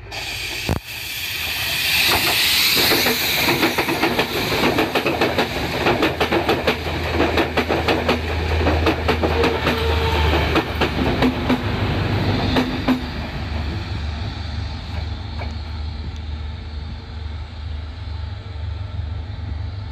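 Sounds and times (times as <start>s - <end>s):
train wheels clattering over rail joints: 1.9s - 13.9s.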